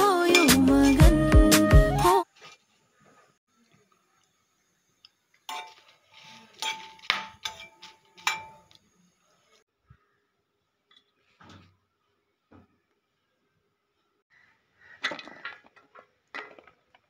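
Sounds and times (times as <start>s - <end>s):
chillies being stirred: 5.1s - 9.6s
spoon clanking against frying pan: 6.6s - 8.8s.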